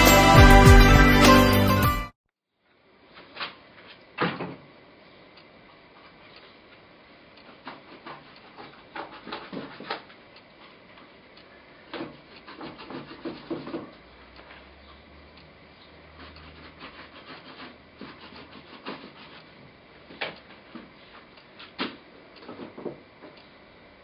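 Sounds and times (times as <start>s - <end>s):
paintbrush scrubbing on canvas: 7.5s - 10.0s, 12.2s - 13.9s, 16.1s - 19.6s.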